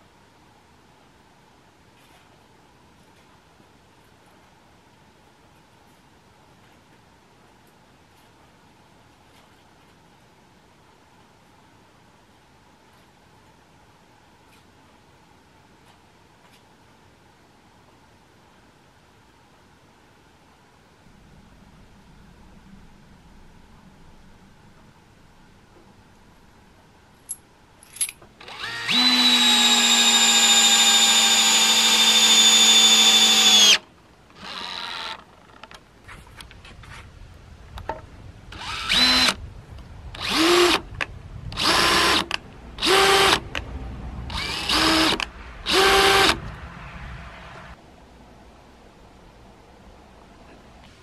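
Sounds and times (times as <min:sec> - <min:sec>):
cordless drill driving screw into wood: 0:28.4 - 0:33.8, 0:38.6 - 0:39.4, 0:40.2 - 0:40.9, 0:41.6 - 0:43.5, 0:44.3 - 0:46.4
drill clicks: 0:28.4 - 0:35.3, 0:38.6 - 0:39.4, 0:44.3 - 0:46.4.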